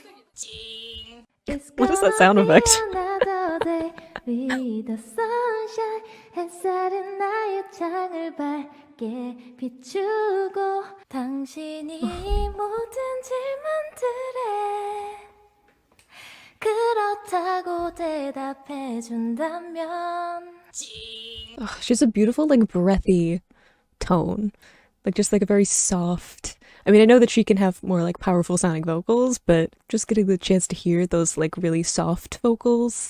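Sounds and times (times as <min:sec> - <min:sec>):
woman singing softly: 0:00.4 - 0:15.3, 0:16.6 - 0:21.6.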